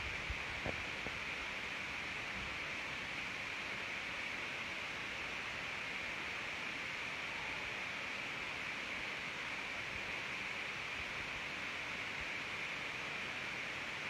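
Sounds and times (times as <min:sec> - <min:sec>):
room noise hiss: 0:00.0 - 0:14.0.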